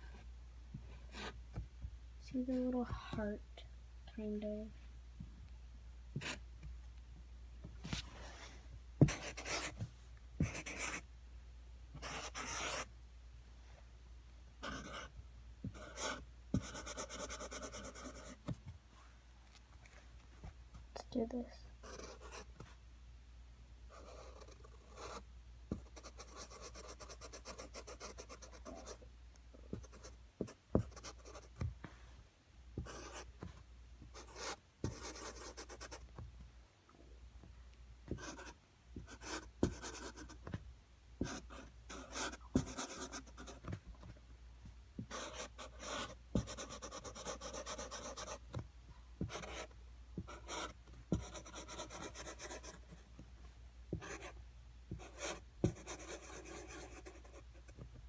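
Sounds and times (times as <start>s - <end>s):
marker scratching on plastic: 9.0s - 9.8s, 10.4s - 11.0s, 12.0s - 12.9s, 14.6s - 15.1s, 15.7s - 18.6s, 21.8s - 22.7s, 23.9s - 29.0s, 29.7s - 31.7s, 32.8s - 33.6s, 34.2s - 36.2s, 38.1s - 40.6s, 41.2s - 43.8s, 45.0s - 48.6s, 49.2s - 53.0s, 53.9s - 57.8s.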